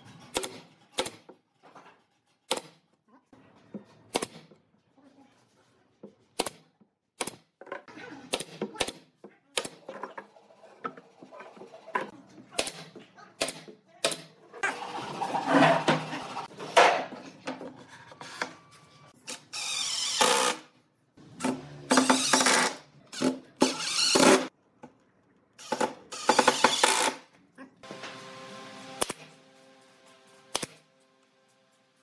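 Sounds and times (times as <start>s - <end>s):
pneumatic nail gun firing: 19.6s - 20.7s, 28.9s - 29.4s, 30.5s - 30.8s.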